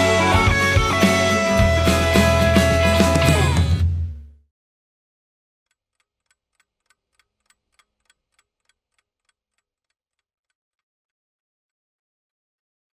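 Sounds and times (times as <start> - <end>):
pocket watch ticking: 5.7 - 10.6.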